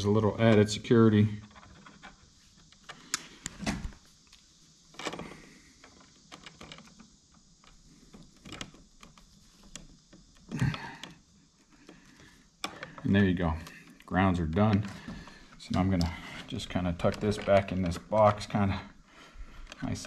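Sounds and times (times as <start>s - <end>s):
small ticks: 4.2s - 20.0s.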